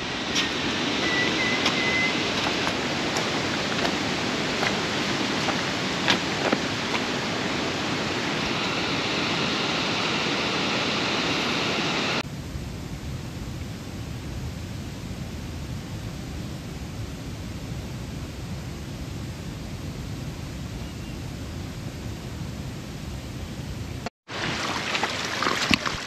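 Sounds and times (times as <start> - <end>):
water rushing: 0.0 - 12.2, 24.3 - 26.0.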